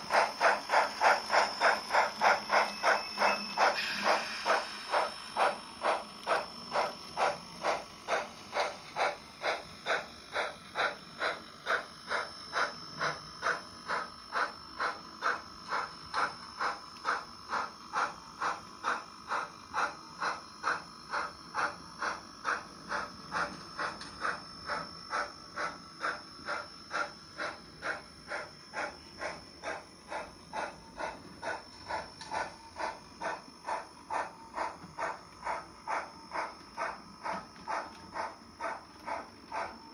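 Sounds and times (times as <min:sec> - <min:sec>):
model steam locomotive chuffing: 0:00.0 - 0:39.9
thin high tone: 0:02.6 - 0:04.9.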